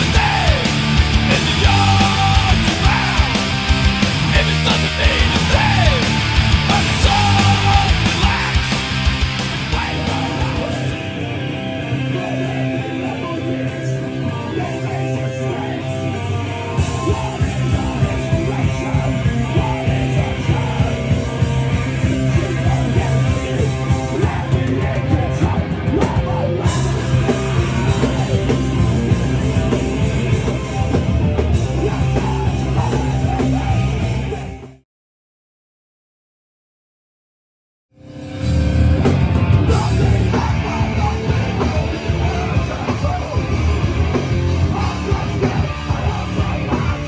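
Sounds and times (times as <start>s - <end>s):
person singing into microphone: 0.0s - 3.4s, 4.2s - 8.8s, 9.6s - 11.0s
fast drumming: 0.0s - 11.1s, 39.1s - 47.0s
bass guitar: 0.0s - 34.8s, 38.0s - 47.0s
distorted electric guitar: 0.0s - 34.8s, 37.9s - 47.0s.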